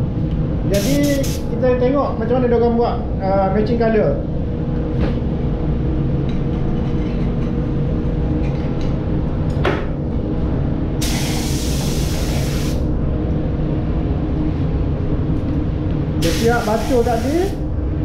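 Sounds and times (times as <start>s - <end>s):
low machine hum: 0.0s - 18.0s
spray gun air hiss: 0.7s - 1.5s, 11.0s - 12.8s, 16.2s - 17.6s.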